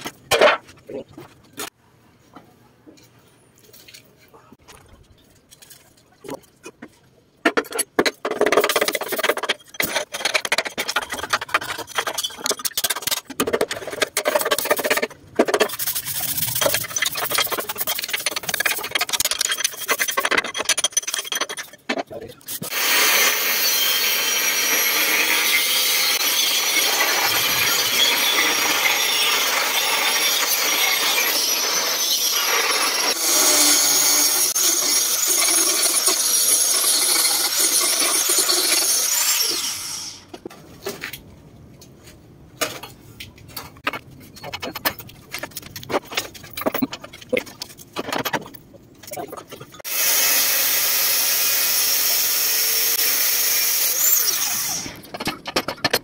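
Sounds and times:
hand tool scraping steel: 0:07.5 - 0:39.7
angle grinder grinding steel: 0:22.5 - 0:40.2.

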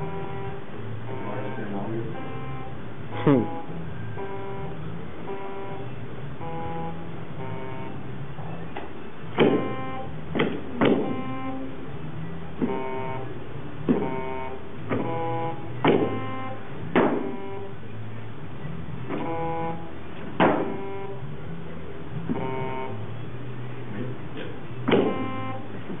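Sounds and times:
buzzy electronic beeps: 0:00.0 - 0:26.0
foot thudding on pad: 0:08.8 - 0:11.2, 0:13.8 - 0:14.2, 0:15.8 - 0:16.2, 0:16.9 - 0:17.4, 0:19.1 - 0:19.3, 0:20.2 - 0:20.8, 0:24.8 - 0:25.3.

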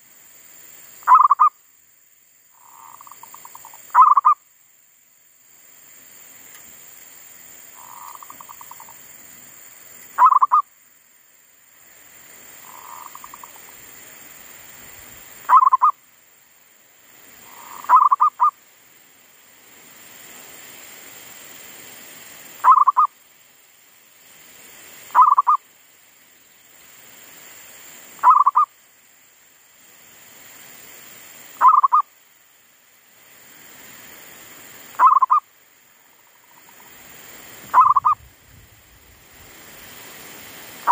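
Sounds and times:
dove cooing: 0:37.7 - 0:38.2.

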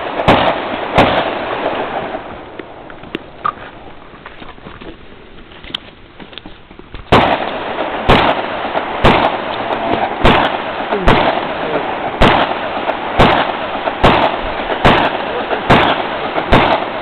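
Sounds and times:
gunshots with long echo: 0:00.0 - 0:02.9, 0:07.1 - 0:17.0.

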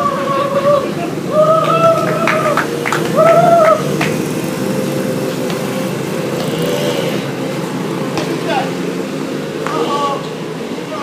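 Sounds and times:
engine humming: 0:00.0 - 0:11.0.

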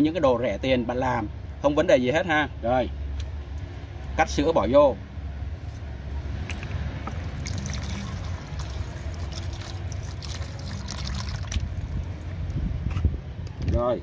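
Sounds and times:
milk pouring into bucket: 0:07.4 - 0:12.2.

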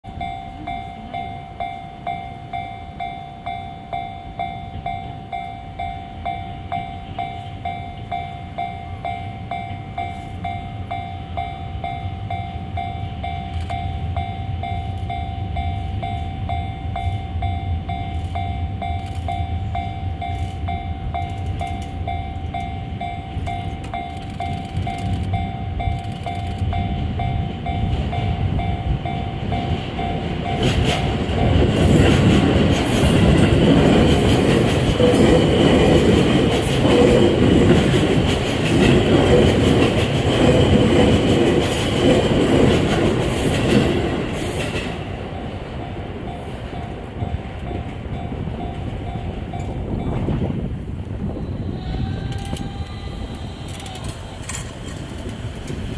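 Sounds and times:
electric train passing: 0:00.0 - 0:55.9
wheels clattering over rail joints: 0:17.9 - 0:46.1
steady high tone: 0:51.1 - 0:55.9.

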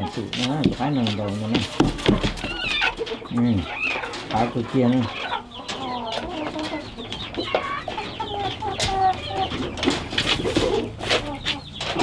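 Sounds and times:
chickens clucking: 0:00.0 - 0:12.0.

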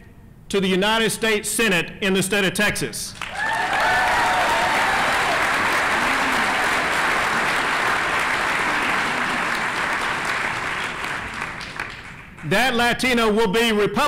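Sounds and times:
audience applauding: 0:03.2 - 0:12.5.

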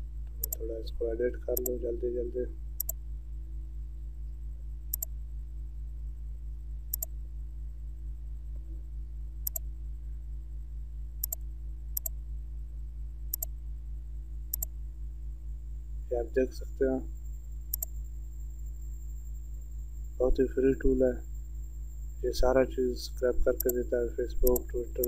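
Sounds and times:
steady low hum: 0:00.0 - 0:25.0
computer mouse clicking: 0:00.4 - 0:00.6, 0:04.9 - 0:05.1, 0:06.9 - 0:07.1, 0:11.2 - 0:11.4, 0:12.0 - 0:12.2, 0:13.3 - 0:13.5, 0:14.5 - 0:14.7, 0:17.7 - 0:18.0, 0:23.6 - 0:23.8, 0:24.4 - 0:24.7.

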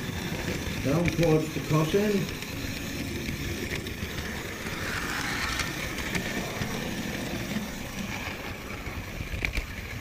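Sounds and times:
model train wheels and motor rumbling: 0:00.0 - 0:10.0
wheels clicking over rail joints: 0:00.0 - 0:10.0.

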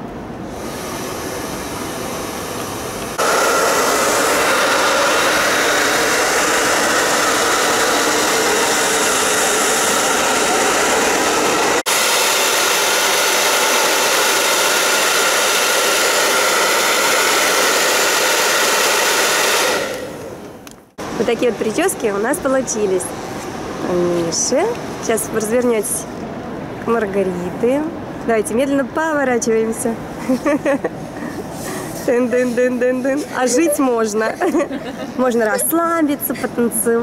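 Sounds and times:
hair dryer blowing: 0:00.5 - 0:20.5.

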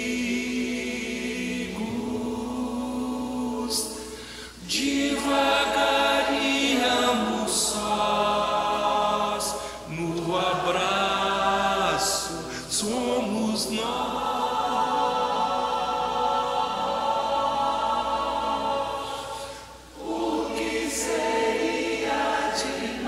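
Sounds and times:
choir singing held chords: 0:00.0 - 0:23.0.

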